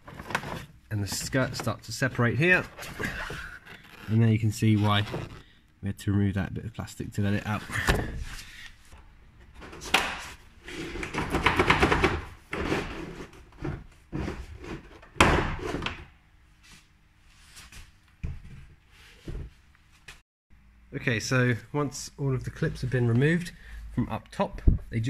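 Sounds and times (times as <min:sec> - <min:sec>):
plastic panel scraping and clicking: 0:00.0 - 0:01.8.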